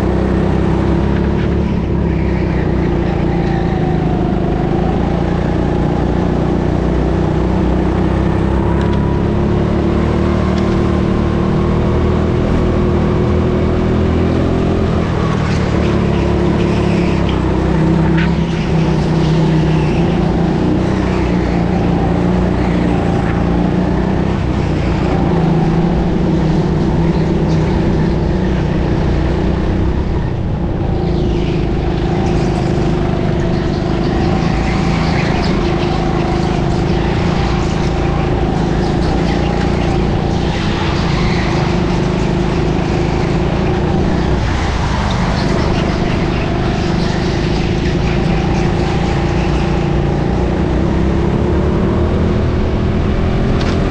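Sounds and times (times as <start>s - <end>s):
go-kart engine droning: 0.0s - 53.9s.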